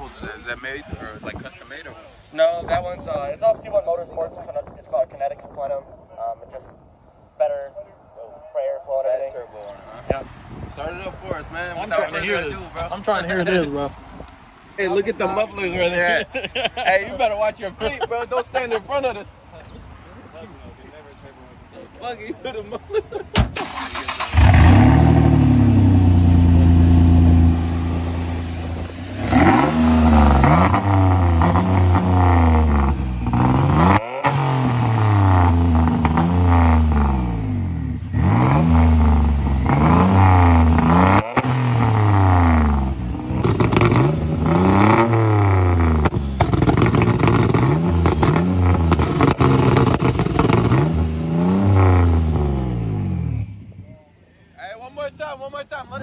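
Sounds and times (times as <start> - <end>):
car engine revving: 23.6 - 53.6.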